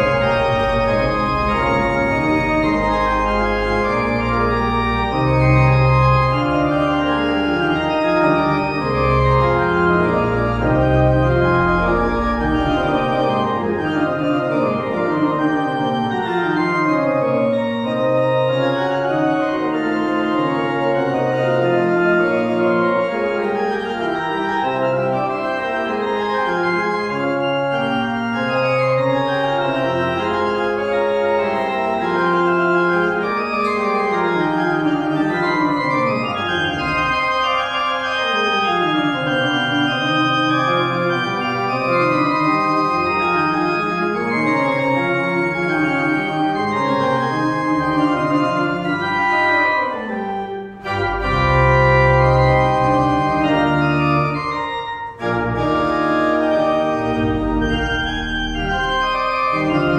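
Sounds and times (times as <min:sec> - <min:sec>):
pipe organ playing: 0:00.0 - 0:59.9.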